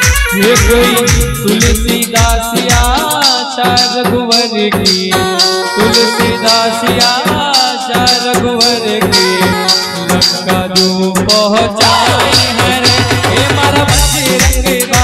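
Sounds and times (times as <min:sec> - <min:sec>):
fast percussion beat: 0:00.0 - 0:15.0
held melody notes: 0:05.2 - 0:07.6, 0:08.6 - 0:11.1.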